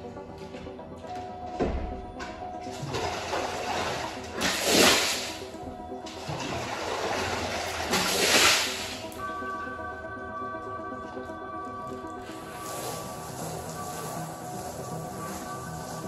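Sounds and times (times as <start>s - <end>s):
background music: 0.0s - 16.0s
water rushing across a rug: 2.8s - 5.6s, 6.3s - 9.2s, 12.3s - 16.0s.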